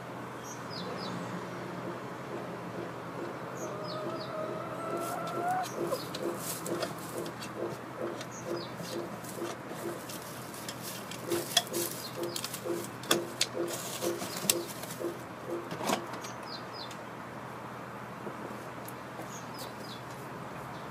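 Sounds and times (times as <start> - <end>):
hens clucking: 1.8 - 15.7
hen drawn-out rising call: 3.5 - 6.1
sharp taps: 11.2 - 15.7.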